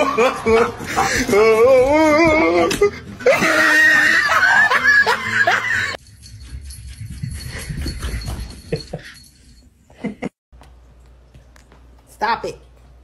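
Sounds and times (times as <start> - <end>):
person laughing loudly: 0.0 - 6.0.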